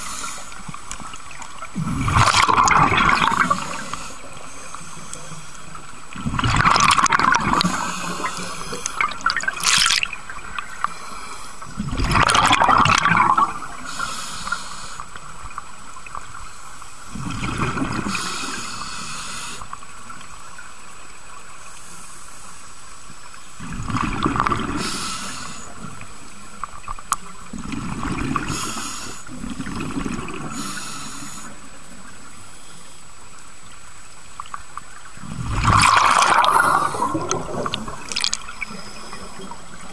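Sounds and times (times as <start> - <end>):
hiss of inhaled breath: 0.0 - 0.6, 3.2 - 5.8, 7.5 - 9.1, 13.8 - 15.2, 18.0 - 19.8, 24.7 - 25.9, 28.4 - 29.8, 30.5 - 31.8
exhaled bubbles gurgling: 1.1 - 10.9, 11.6 - 14.1, 17.1 - 18.8, 23.6 - 26.2, 26.8 - 32.3, 35.1 - 39.9.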